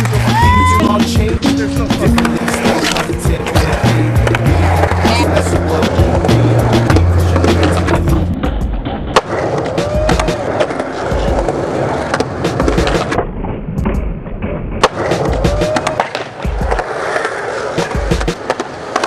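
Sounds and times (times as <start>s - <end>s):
music with steady bass: 0.0s - 9.1s
skateboard knocking on coping: 0.0s - 19.0s
skateboard wheels rolling on concrete: 0.0s - 19.0s.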